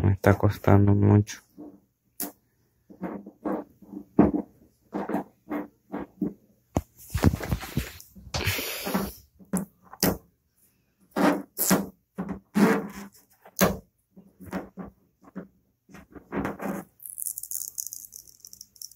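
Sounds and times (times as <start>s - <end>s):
fingernails scraping plastic decal: 11.1s - 13.6s.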